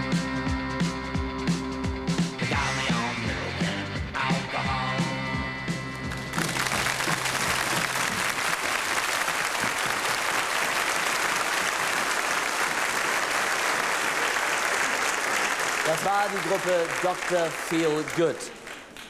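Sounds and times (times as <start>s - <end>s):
audience applauding: 6.0s - 19.0s.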